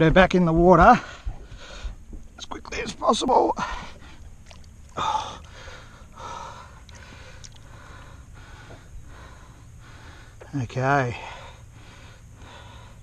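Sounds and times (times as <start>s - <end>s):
person breathing heavily: 1.0s - 2.0s, 5.0s - 10.5s, 11.1s - 13.0s.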